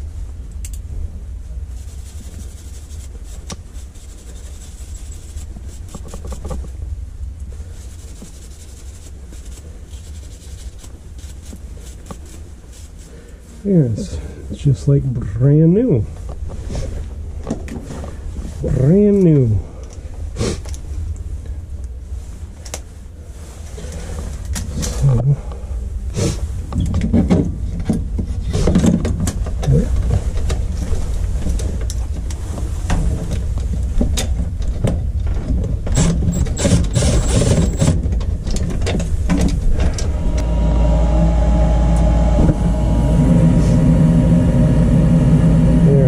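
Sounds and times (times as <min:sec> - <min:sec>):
low hum: 0:39.5 - 0:46.0
furnace motor humming: 0:39.8 - 0:46.0.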